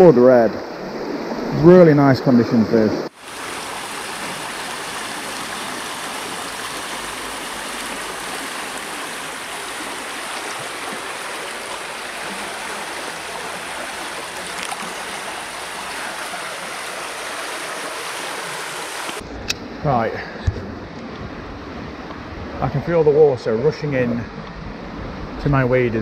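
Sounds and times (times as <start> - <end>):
river water rushing over stones: 3.1 - 19.2.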